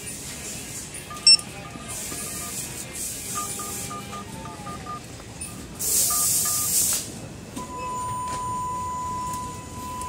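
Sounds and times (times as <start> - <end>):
short electronic beeps: 1.1 - 6.9.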